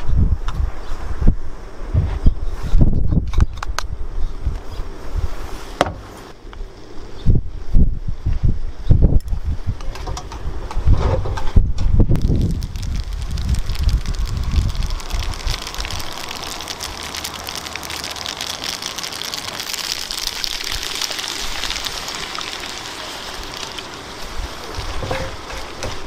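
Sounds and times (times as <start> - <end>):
liquid poured into pan: 12.2 - 25.4
pasta sizzling in a skillet: 12.2 - 26.0.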